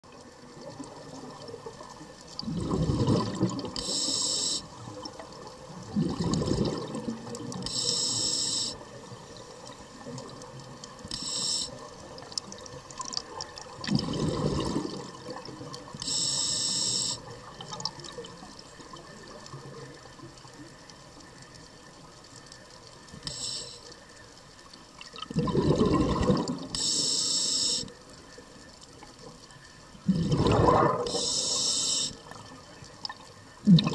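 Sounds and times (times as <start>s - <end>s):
exhaled bubbles gurgling: 0.1s - 20.6s, 25.0s - 27.8s, 29.9s - 33.9s
regulator inhalation hiss: 3.8s - 4.8s, 7.6s - 9.0s, 11.1s - 12.1s, 16.0s - 17.4s, 23.2s - 24.1s, 26.7s - 28.0s, 31.1s - 32.3s.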